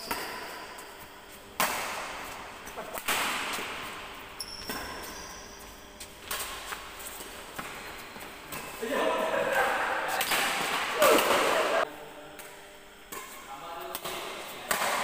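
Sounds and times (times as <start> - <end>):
rackets striking shuttlecock: 0.0 - 8.8, 9.5 - 11.7, 12.4 - 15.0
shoes squeaking on court: 0.2 - 8.8.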